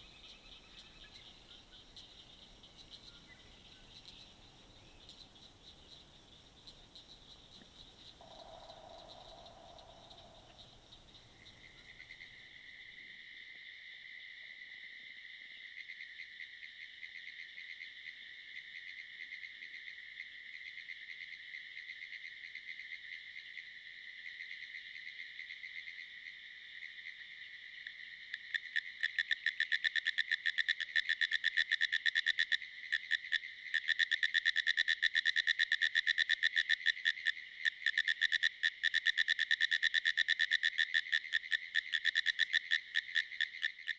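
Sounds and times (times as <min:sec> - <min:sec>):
tree frogs chorus: 0:00.0 - 0:43.9
rapid frog call pulses: 0:06.7 - 0:12.8, 0:28.3 - 0:43.9.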